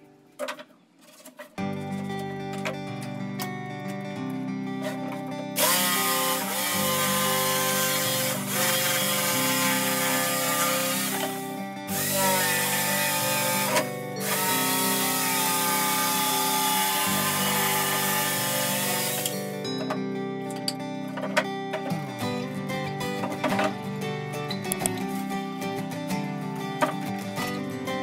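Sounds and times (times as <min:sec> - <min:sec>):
acoustic guitar music: 0:00.0 - 0:28.0
electric jigsaw cutting wood: 0:05.6 - 0:19.6.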